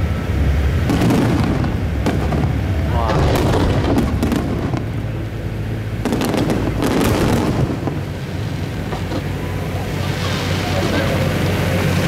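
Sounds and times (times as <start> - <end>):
firework shells bursting: 0.8 - 5.1.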